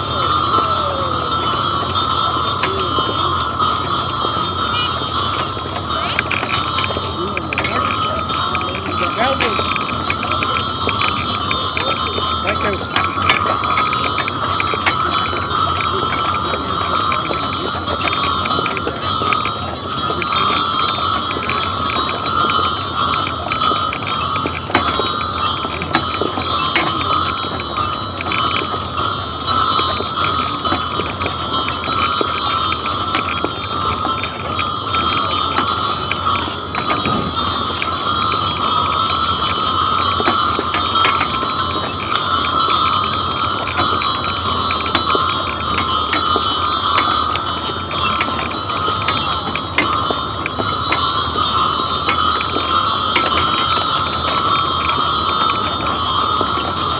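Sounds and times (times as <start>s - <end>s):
harness bells jingling: 0.0s - 56.9s.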